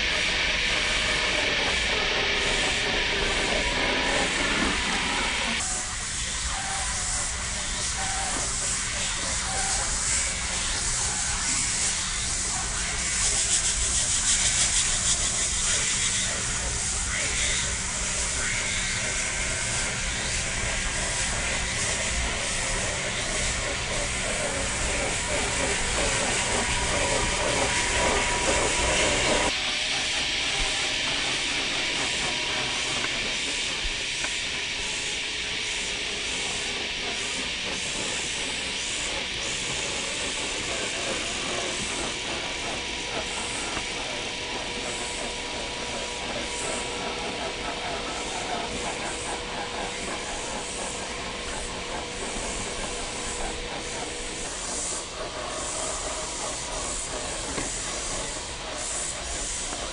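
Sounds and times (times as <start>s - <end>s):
tyres hissing on dirt: 0.0s - 59.9s.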